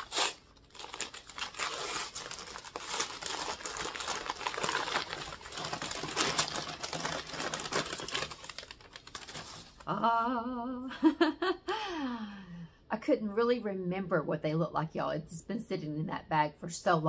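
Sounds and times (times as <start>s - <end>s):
paper wrapping crinkling: 0.0s - 9.9s.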